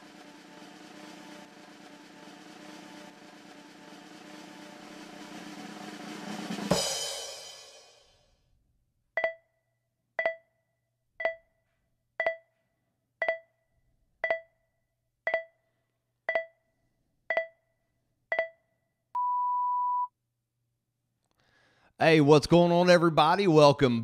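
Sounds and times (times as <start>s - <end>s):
long steady beep: 19.2s - 20.1s
short electronic beeps: 19.2s - 20.1s.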